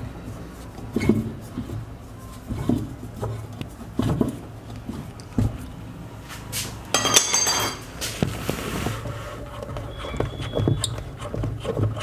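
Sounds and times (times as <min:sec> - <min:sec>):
wrench clinking on metal bolt: 0:07.0 - 0:07.8.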